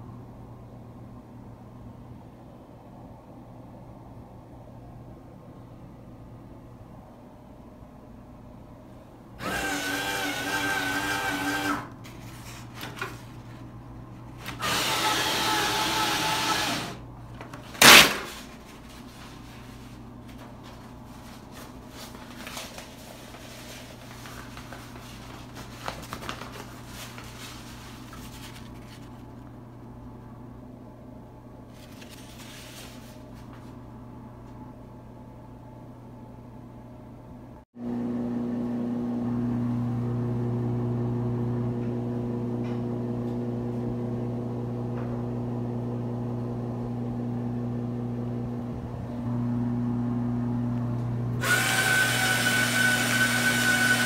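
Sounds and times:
paper towel dispenser motor humming: 9.4 - 29.6, 37.8 - 54.0.

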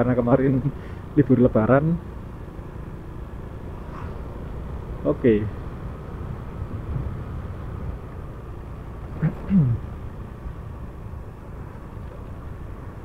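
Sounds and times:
motorcycle engine: 0.3 - 13.0
wind rumble on microphone: 6.2 - 8.4.

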